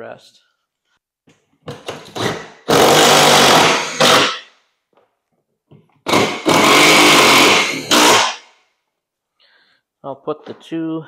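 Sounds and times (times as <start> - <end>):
cordless drill driving screws: 1.8 - 4.4, 6.0 - 8.4.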